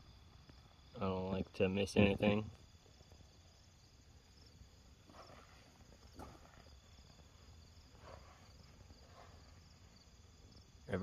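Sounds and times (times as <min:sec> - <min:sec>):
insects chirping: 0:00.0 - 0:11.0
footsteps on sand and gravel: 0:05.0 - 0:07.3.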